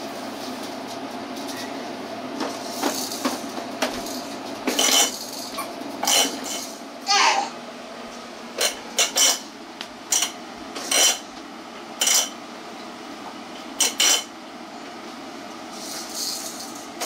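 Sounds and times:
hard objects clinking together: 2.6 - 6.8.

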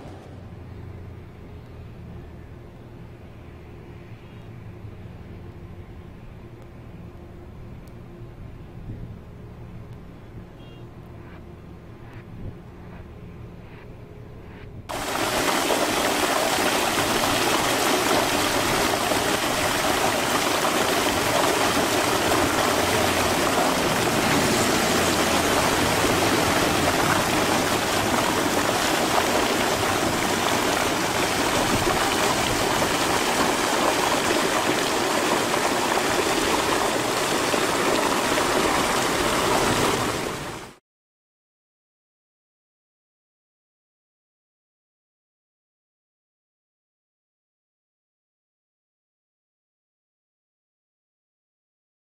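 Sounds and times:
water gushing from a pipe: 14.9 - 40.8.

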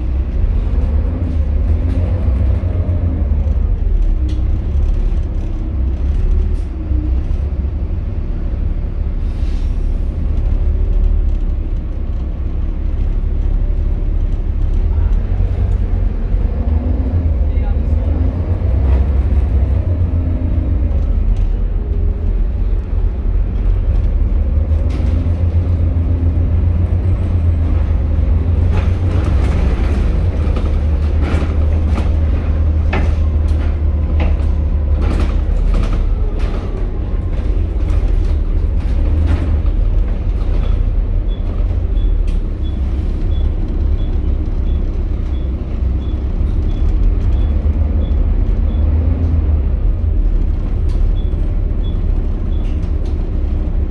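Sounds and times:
rattles and knocks of bus body: 0.0 - 9.1, 18.1 - 53.9
bus diesel engine rumbling: 0.0 - 53.9.

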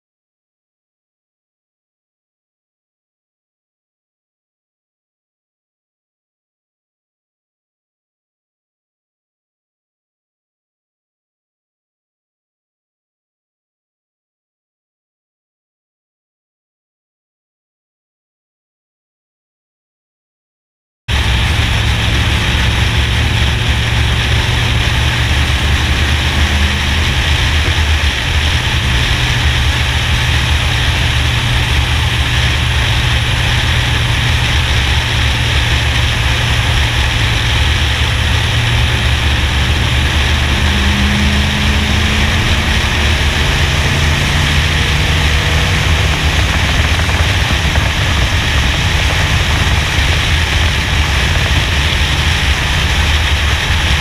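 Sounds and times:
race car engine drone: 21.1 - 54.0
wind rush: 21.1 - 54.0.

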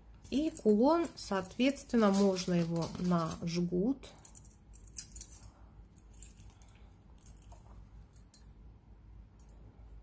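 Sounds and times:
soft clicks and rustles: 4.2 - 8.5.

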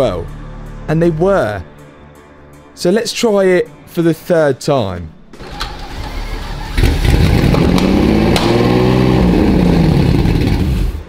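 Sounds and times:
car engine cranking and revving: 5.4 - 11.0.

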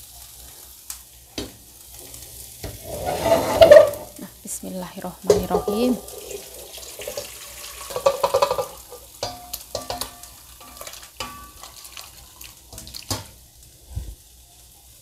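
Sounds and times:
metal utensil scraping a pan: 2.6 - 4.3, 5.3 - 6.7, 7.6 - 12.0
stew poured into a pot: 6.0 - 9.0, 10.3 - 13.4.

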